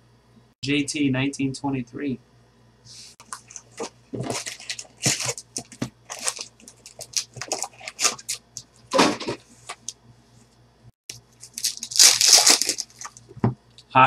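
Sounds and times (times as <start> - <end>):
foil packs crinkling: 3.2 - 9.2, 11.4 - 13.4.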